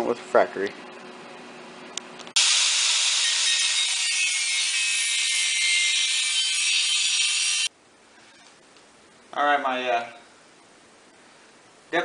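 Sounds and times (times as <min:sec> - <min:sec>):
angle grinder cutting steel: 0:02.4 - 0:07.7.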